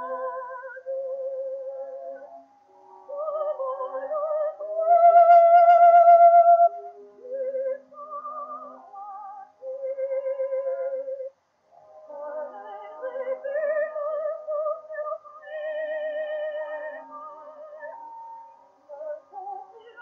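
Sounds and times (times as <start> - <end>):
old gramophone record song: 0.0 - 20.0
wavering vocal melody with vibrato: 0.0 - 20.0.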